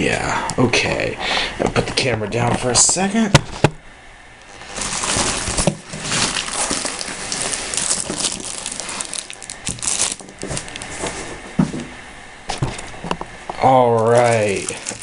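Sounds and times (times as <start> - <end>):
plastic wrap crinkling: 4.4 - 11.4, 13.6 - 15.0.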